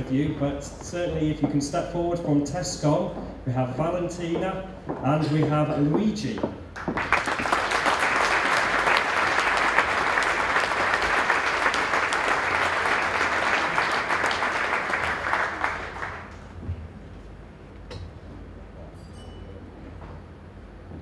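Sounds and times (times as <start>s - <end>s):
audience applauding: 6.8s - 16.6s.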